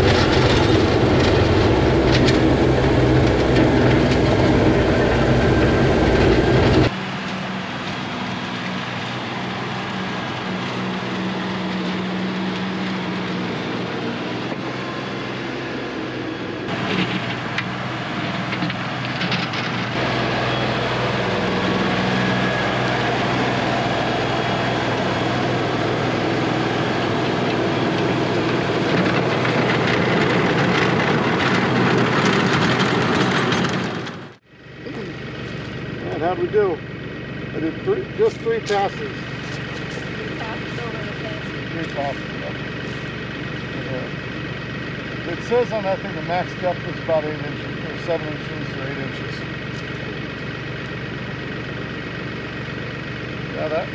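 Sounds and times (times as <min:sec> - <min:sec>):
rototiller churning soil: 0:00.0 - 0:53.9
tractor diesel engine running: 0:00.0 - 0:53.9.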